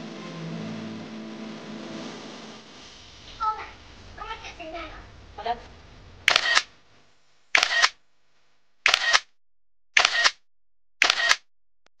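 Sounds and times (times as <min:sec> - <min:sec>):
camera shutter clicks: 0:06.3 - 0:06.7, 0:07.6 - 0:08.0, 0:08.9 - 0:09.3, 0:10.0 - 0:10.4, 0:11.0 - 0:11.5.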